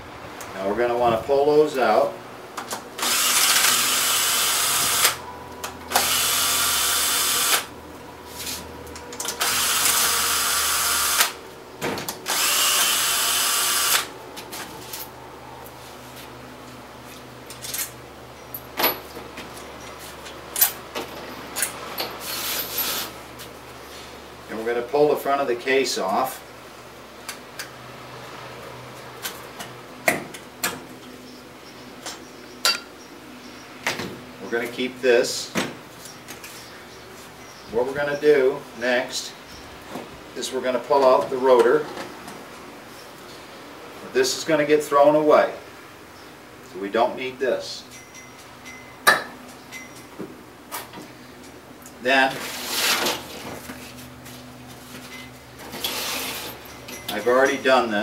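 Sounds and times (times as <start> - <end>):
power drill unscrewing screws: 3.0 - 5.2, 9.2 - 11.4, 12.2 - 14.1.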